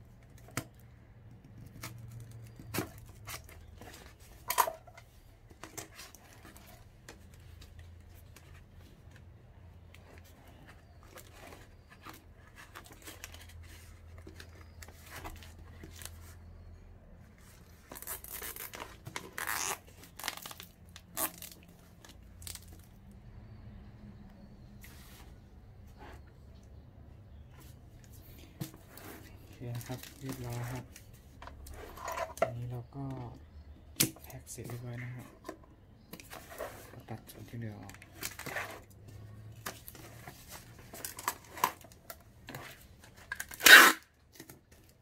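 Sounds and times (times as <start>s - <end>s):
packing material tearing: 17.8s - 21.8s, 43.3s - 44.1s
packing materials rustling: 28.3s - 32.1s.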